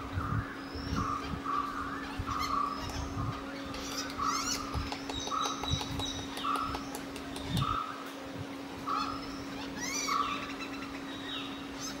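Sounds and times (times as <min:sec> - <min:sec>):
birds chirping and whistling: 0:00.0 - 0:08.0, 0:08.7 - 0:12.0
steady low hum: 0:00.0 - 0:12.0
sharp clicks: 0:03.7 - 0:07.8
bird rasping call: 0:08.8 - 0:12.0.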